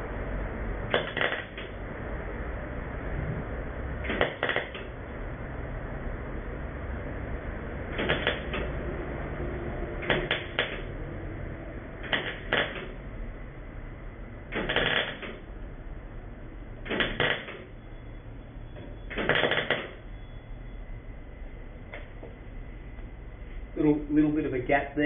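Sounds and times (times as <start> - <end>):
arc welder crackle: 0.8 - 1.9, 4.0 - 5.1, 7.8 - 8.9, 10.0 - 11.0, 12.0 - 13.0, 14.5 - 15.5, 16.8 - 17.7, 19.1 - 20.0.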